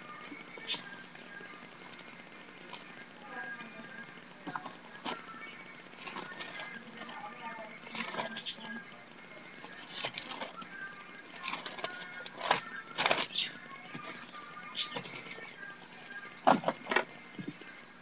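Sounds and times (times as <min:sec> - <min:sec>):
sketchbook rustling and knocking: 0:16.4 - 0:17.6.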